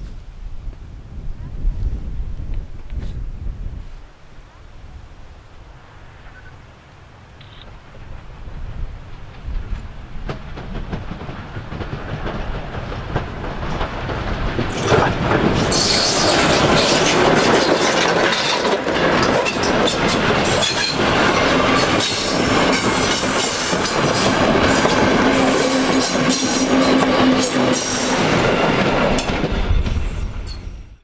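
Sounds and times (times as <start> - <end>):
steam locomotive passing: 4.9 - 31.0
train wheels clacking over rail joints: 8.2 - 30.7.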